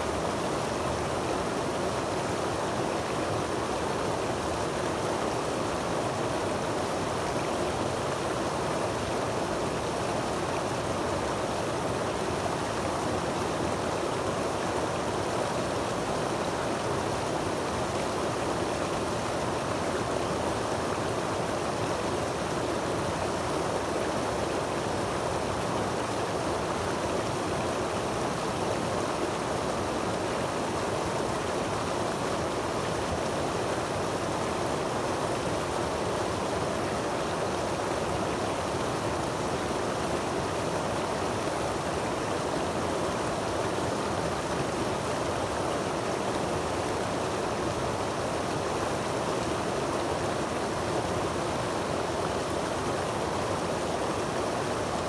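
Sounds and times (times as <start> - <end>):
creek water rushing over boulders: 0.0 - 55.0.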